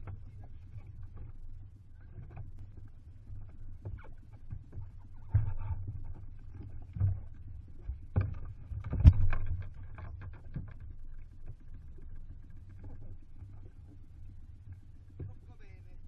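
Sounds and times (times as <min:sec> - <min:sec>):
low steady rumble: 0:00.0 - 0:16.0.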